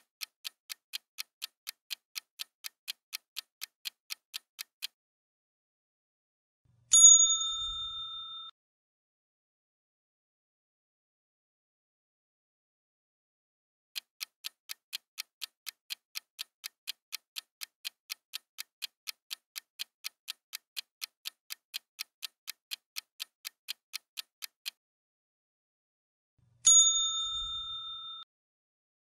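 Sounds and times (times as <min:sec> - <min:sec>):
timer ticking: 0:00.0 - 0:05.0, 0:14.0 - 0:24.8
bell-like chime: 0:06.9 - 0:08.6, 0:26.7 - 0:28.3.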